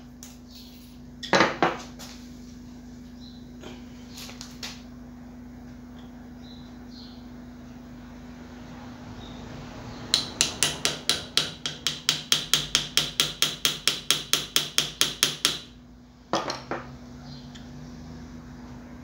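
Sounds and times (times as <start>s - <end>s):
hammer tapping on metal: 10.1s - 15.8s.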